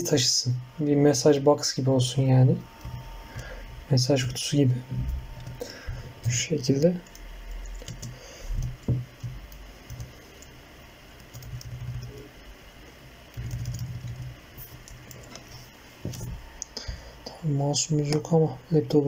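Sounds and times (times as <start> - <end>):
short low hum: 2.0 - 17.4
laptop keyboard typing: 5.3 - 12.5, 13.2 - 15.5.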